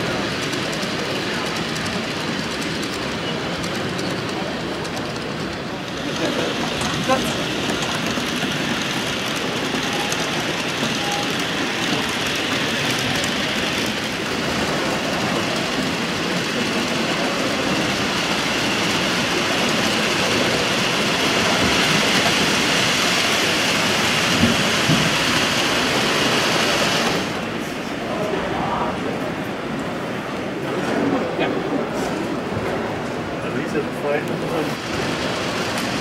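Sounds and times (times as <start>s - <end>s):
model trains rattling on track: 0.0s - 28.2s, 29.2s - 36.0s.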